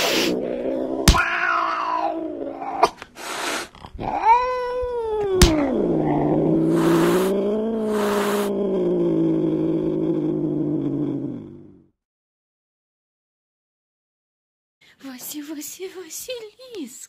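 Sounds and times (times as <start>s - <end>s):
cat meowing and yowling: 1.0s - 2.9s, 4.0s - 8.5s.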